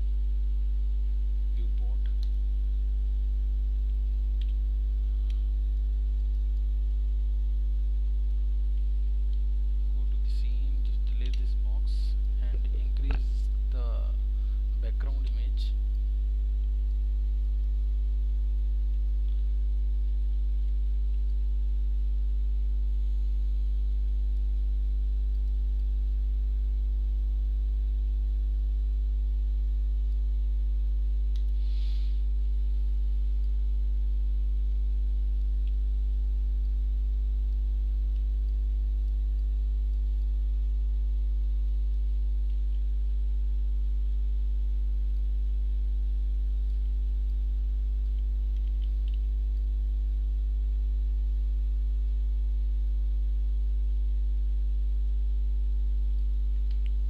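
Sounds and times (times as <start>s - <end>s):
electrical mains hum: 0.0s - 57.0s
faint hiss: 31.4s - 32.8s.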